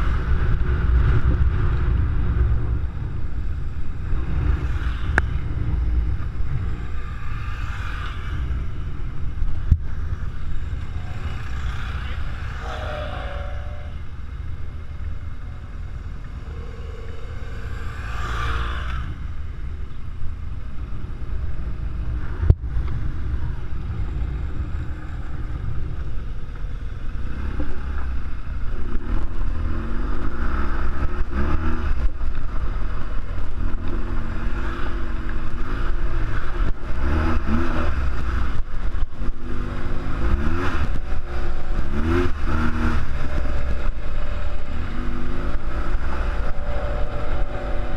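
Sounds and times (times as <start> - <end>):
wind rushing: 0.0 - 26.4
motorcycle engine revving: 0.0 - 47.9.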